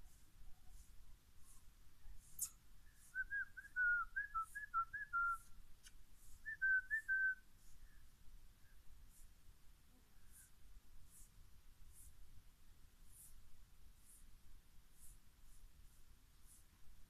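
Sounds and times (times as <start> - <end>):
person whistling chirpy notes: 2.4 - 5.5, 6.4 - 7.4.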